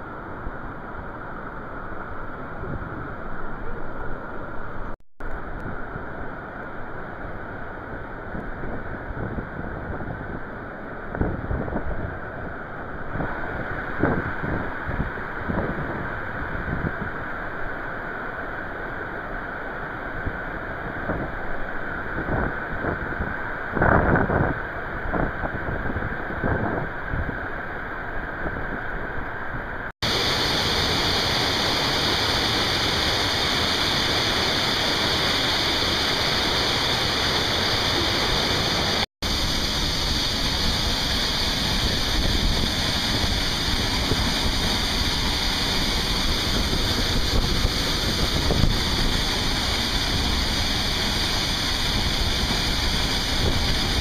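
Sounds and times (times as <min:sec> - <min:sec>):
waterfall rushing: 0:30.0 - 0:54.0.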